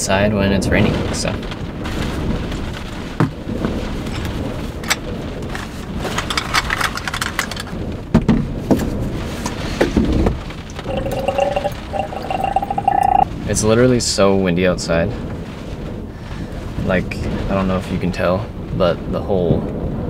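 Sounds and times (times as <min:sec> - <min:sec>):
wind buffeting a vehicle: 0:00.0 - 0:10.7, 0:13.3 - 0:20.0
rain drumming on vehicle: 0:00.1 - 0:20.0.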